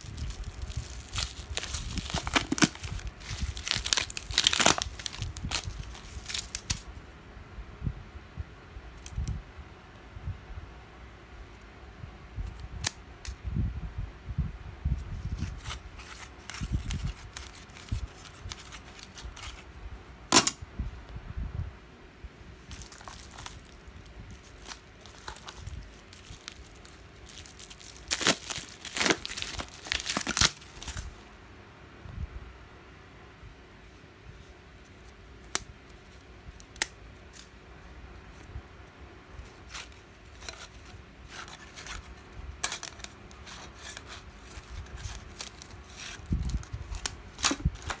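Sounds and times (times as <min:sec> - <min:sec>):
plastic packaging crinkling: 0:00.0 - 0:06.9, 0:15.3 - 0:19.6, 0:22.6 - 0:31.2, 0:39.4 - 0:48.0.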